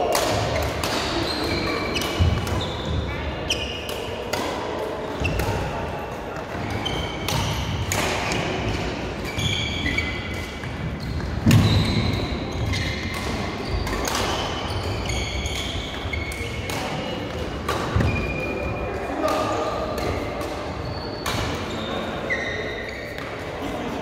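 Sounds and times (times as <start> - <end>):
racket hitting shuttlecock: 0.0 - 18.3, 19.2 - 21.7
shoe squeaks on court: 1.2 - 3.9, 9.2 - 17.2, 20.7 - 23.3.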